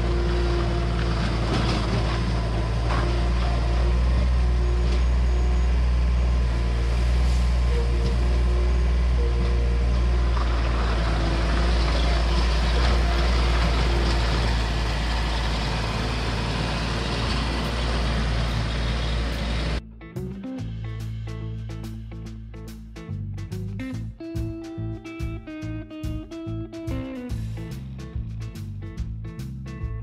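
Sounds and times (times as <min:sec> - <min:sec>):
loader engine running: 0:00.0 - 0:22.6.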